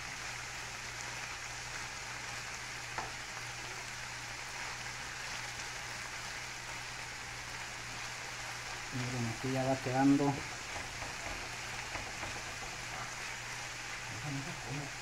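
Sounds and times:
food sizzling in frying pan: 0.0 - 15.0
spatula stirring in pan: 4.4 - 6.9, 7.6 - 15.0
spatula tap: 10.6 - 12.8.

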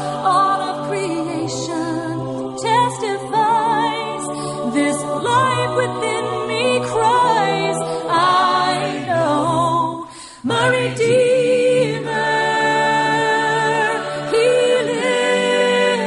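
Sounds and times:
pop song singing with backing music: 0.0 - 16.0.

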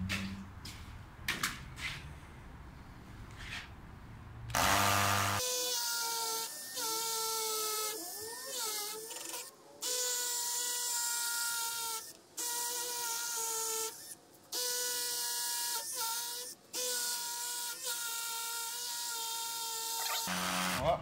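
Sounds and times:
cordless drill motor whine: 4.5 - 5.6, 18.7 - 20.9.

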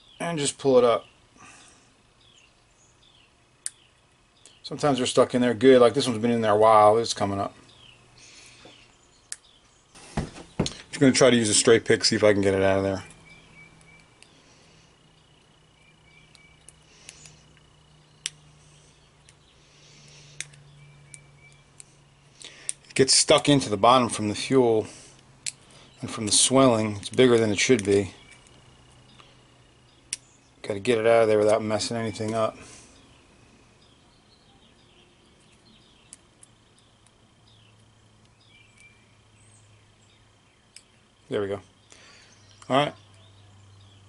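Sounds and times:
faint steady hum: 0.0 - 44.0
small sharp ticks: 3.6 - 4.6, 8.2 - 9.6, 12.4 - 15.0, 16.1 - 23.0, 25.1 - 26.0, 26.8 - 30.4, 35.4 - 39.0, 40.7 - 41.0
faint high chirps: 12.6 - 22.8
metal pick clicking and scraping: 20.4 - 23.0.

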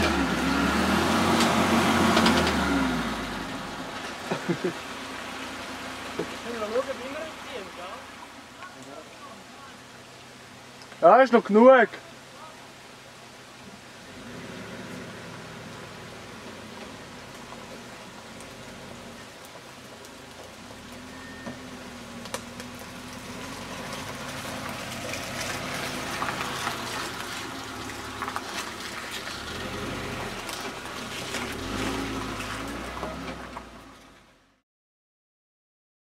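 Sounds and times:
car engine running under load: 0.0 - 6.9, 13.7 - 34.5
rushing crackling noise: 14.0 - 34.2.

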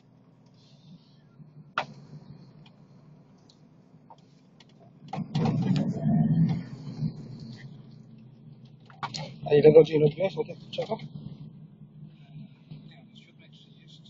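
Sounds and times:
car cabin hum: 0.0 - 14.0.

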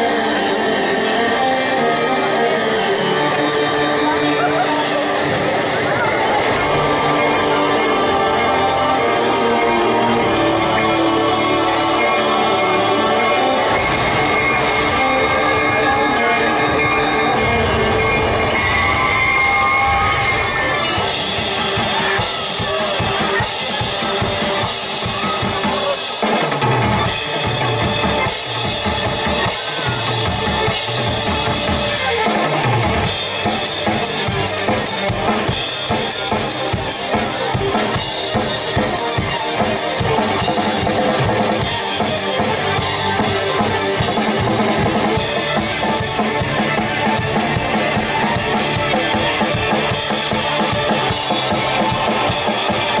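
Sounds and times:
cymbals crashing: 0.0 - 32.1
drum kit played fast: 0.0 - 53.0.

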